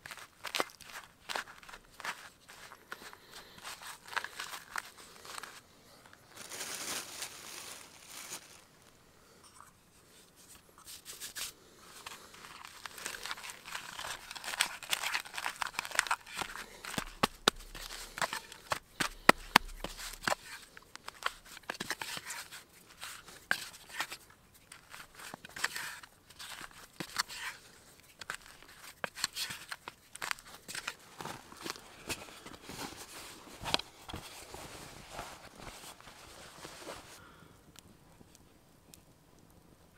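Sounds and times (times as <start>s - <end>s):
dough squishing and tearing: 12.0s - 32.7s.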